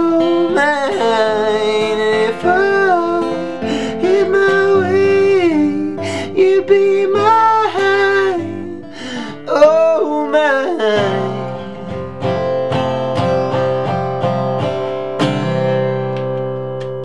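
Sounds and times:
man singing: 0.0 - 12.6
acoustic guitar strumming: 0.0 - 17.0.

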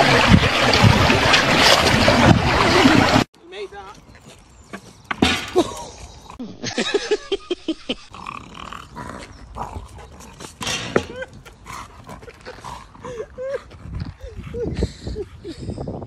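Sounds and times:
dog growling and grunting: 8.0 - 14.7.

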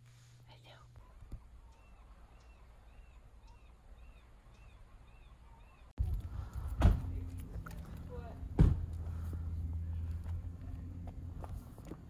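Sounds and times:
low steady hum: 0.0 - 12.0
bird chirping: 1.0 - 6.0.

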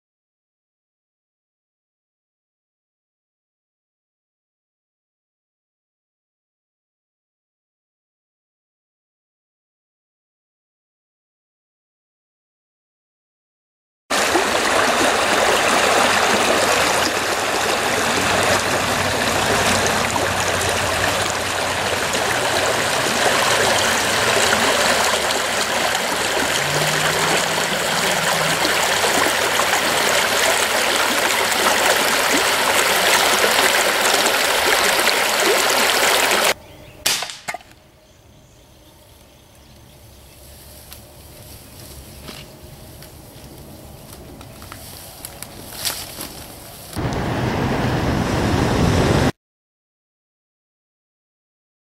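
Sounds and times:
creek water rushing over rocks: 14.1 - 36.6.

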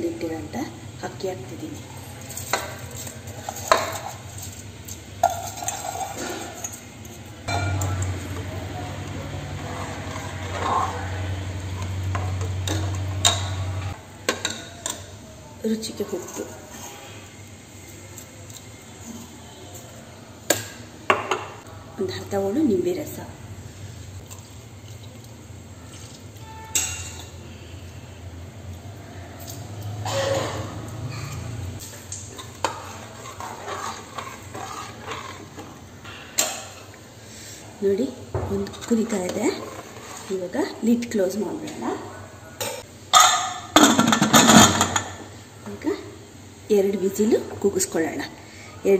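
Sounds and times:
mixture boiling: 0.0 - 42.1
ladle stirring rice in pot: 2.0 - 15.2, 31.8 - 37.6, 38.6 - 41.1.

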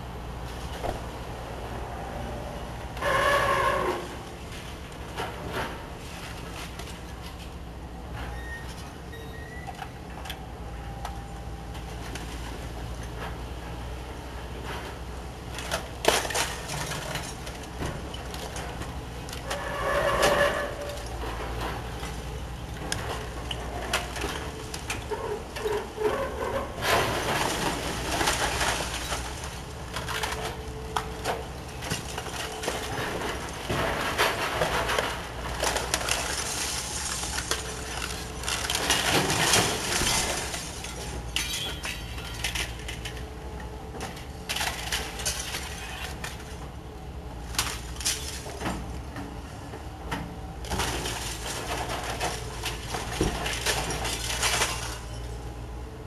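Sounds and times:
falling debris: 14.6 - 43.4, 44.0 - 46.6, 47.4 - 49.1, 50.6 - 55.6
wall cracking and crashing: 22.8 - 30.6, 31.2 - 43.2, 50.6 - 55.3.

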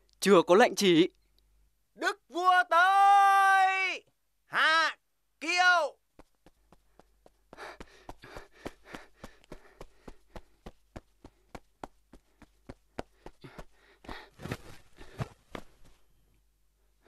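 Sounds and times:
quick footstep taps: 6.1 - 16.0
soft rustling: 6.2 - 16.2.

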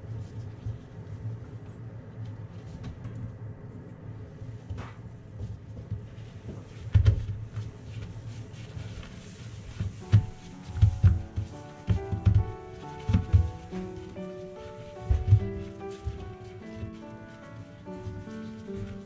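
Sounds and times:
paper patting and rustling: 4.8 - 19.0
background music: 9.7 - 19.0
knocks: 10.0 - 14.3.

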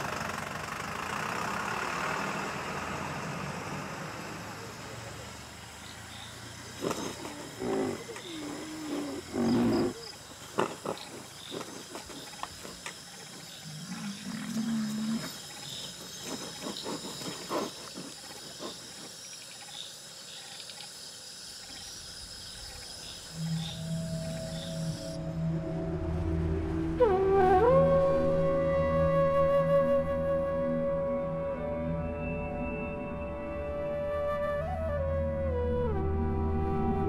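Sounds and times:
night insects chirring: 0.6 - 25.6
sharp snorts: 6.7 - 12.9, 13.8 - 19.2
rhinoceros calling: 6.7 - 19.2.

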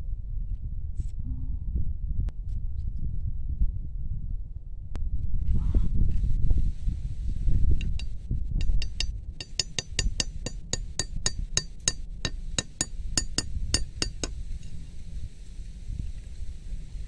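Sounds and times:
metal blade clinking on stake: 7.8 - 14.4.

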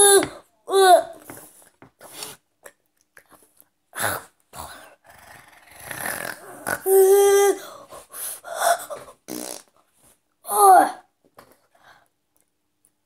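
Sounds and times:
boy gagging and retching: 6.0 - 7.3, 9.2 - 9.8
boy groaning in disgust: 6.4 - 7.7, 10.5 - 11.1.

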